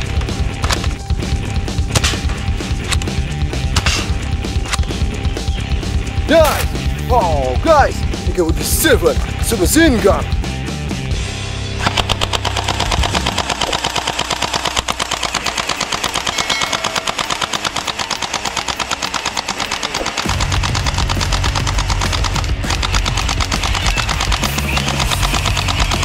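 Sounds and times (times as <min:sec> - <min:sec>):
toy blaster rapid firing: 0:11.8 - 0:26.0.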